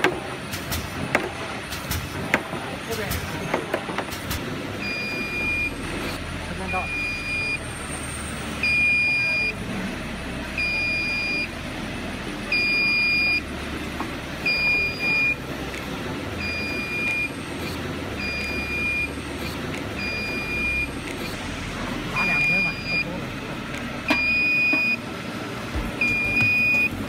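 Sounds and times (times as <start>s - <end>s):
alarm buzzer beeping: 4.8s - 5.8s, 6.6s - 7.7s, 8.6s - 9.6s, 10.6s - 11.5s, 12.5s - 13.5s, 14.4s - 15.4s, 16.4s - 17.4s, 18.2s - 19.2s, 20.0s - 21.4s, 22.1s - 23.1s, 24.1s - 25.0s, 26.0s - 27.0s.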